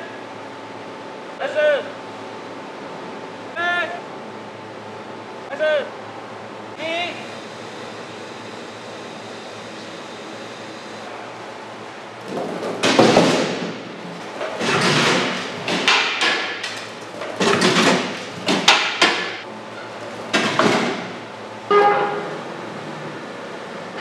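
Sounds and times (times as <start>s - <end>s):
hard knocks and scraping clatter: 12.2s - 22.2s.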